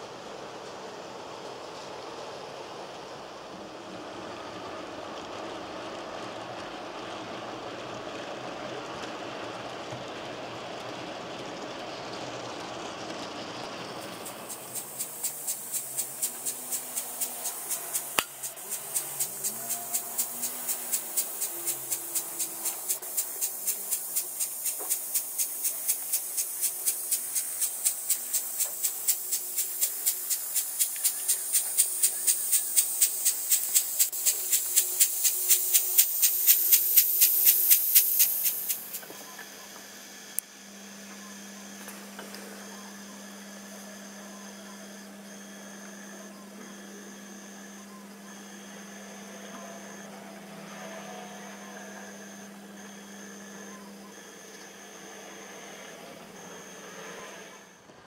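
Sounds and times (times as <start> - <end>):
model train clicking: 0.0 - 39.5
rising hiss: 12.0 - 40.6
steady low hum: 12.4 - 57.8.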